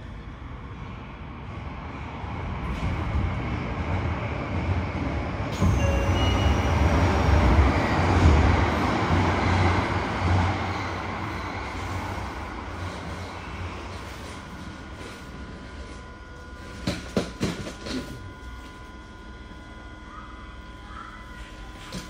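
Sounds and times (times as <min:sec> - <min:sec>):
train running rumble: 0:00.8 - 0:18.5.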